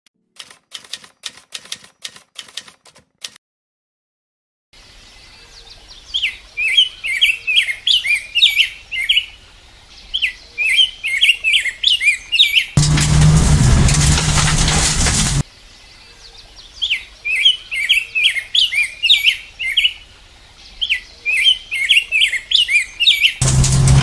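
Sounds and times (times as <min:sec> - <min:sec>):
typewriter key clicks: 0:00.4 - 0:03.4
faint outdoor background: 0:04.8 - 0:24.0.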